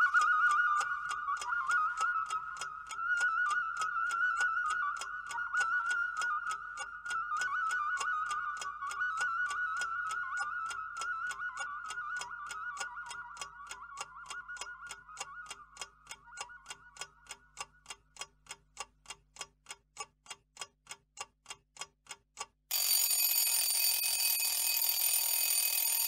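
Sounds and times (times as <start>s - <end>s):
clock ticking: 13.1s - 26.0s
alarm clock bell ringing: 22.7s - 26.0s.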